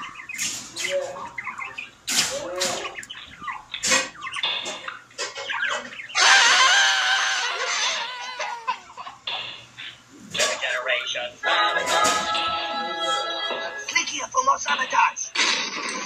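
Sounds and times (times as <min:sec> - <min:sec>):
squawking yelping cries: 0:01.3 - 0:10.0
loud wavering scream: 0:06.2 - 0:08.7.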